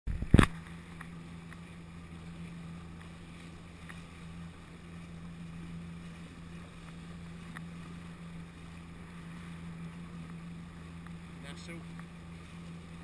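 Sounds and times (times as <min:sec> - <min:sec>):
wind noise: 0:00.1 - 0:00.6
low engine hum: 0:00.1 - 0:13.0
water noise: 0:00.1 - 0:13.0.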